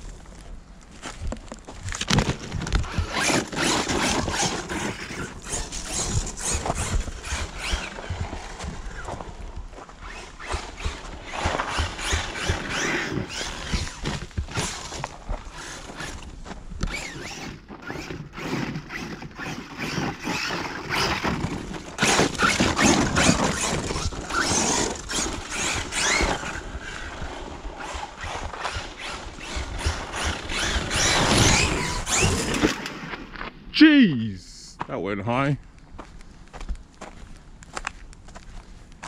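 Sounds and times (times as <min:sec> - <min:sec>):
rc car motor whining: 0:02.8 - 0:09.4, 0:10.0 - 0:33.0.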